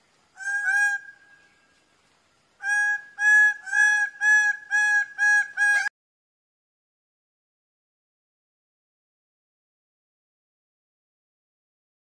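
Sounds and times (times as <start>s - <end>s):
bird calling: 0.0s - 1.8s, 2.6s - 5.9s.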